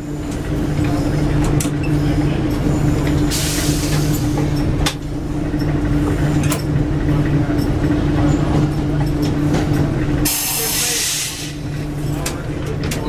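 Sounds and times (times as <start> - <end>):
railcar hum and rumble: 0.0 - 13.0
loud hiss of air: 10.3 - 11.6.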